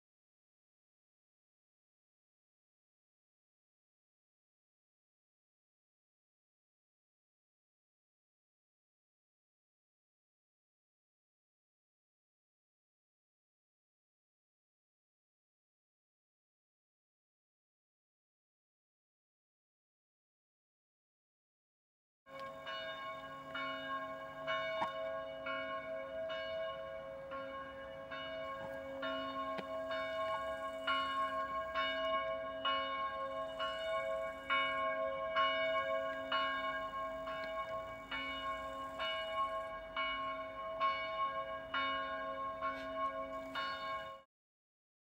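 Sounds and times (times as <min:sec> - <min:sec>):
church bells ringing: 0:22.3 - 0:44.3.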